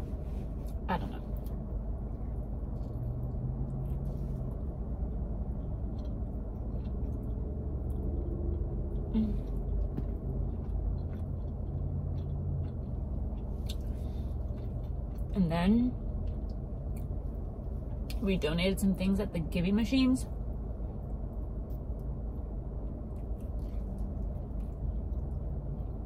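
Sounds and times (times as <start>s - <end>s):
car interior rumble: 0.0s - 26.0s
person chewing food: 0.1s - 15.3s, 16.1s - 18.2s, 20.8s - 26.0s.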